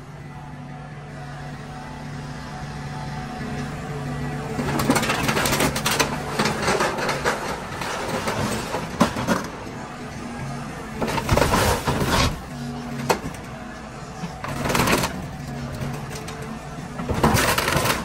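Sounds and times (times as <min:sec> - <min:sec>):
excavator diesel engine: 0:00.0 - 0:18.0
sheet metal crunching: 0:04.6 - 0:09.7, 0:10.9 - 0:13.6, 0:14.3 - 0:18.0.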